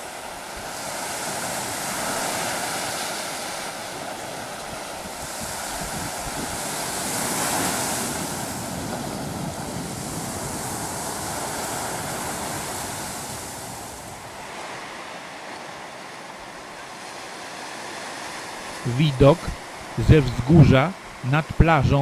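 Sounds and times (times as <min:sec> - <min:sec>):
sea surf breaking over rocks: 0:00.0 - 0:22.0.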